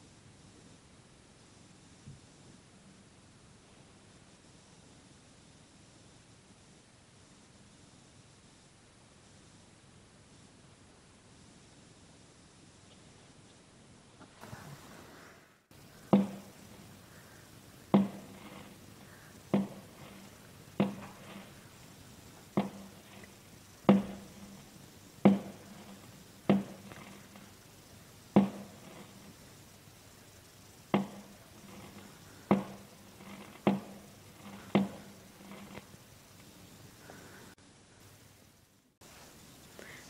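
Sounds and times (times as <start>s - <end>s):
sharp knocks with low ring: 23.9s - 24.6s, 25.2s - 27.4s.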